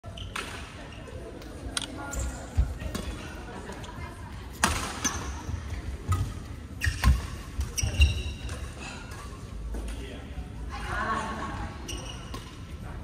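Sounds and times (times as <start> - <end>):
shoes squeaking on court floor: 4.9 - 8.8, 11.8 - 12.7.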